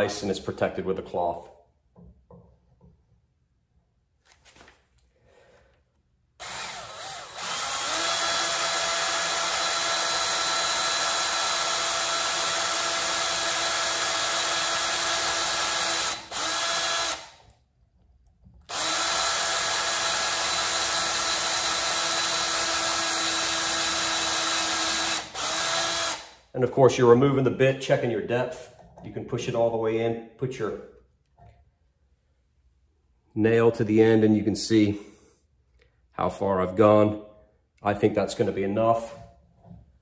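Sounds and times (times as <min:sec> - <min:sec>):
cordless drill whining: 0:06.4 - 0:17.4, 0:18.7 - 0:26.4.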